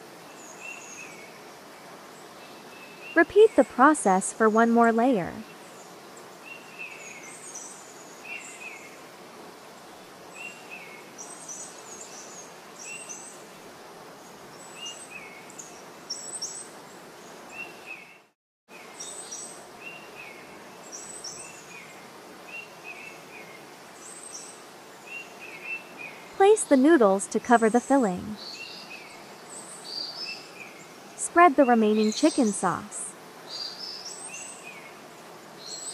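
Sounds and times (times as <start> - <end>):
steady background hiss: 0.0 - 35.9
birds chirping: 31.2 - 34.6.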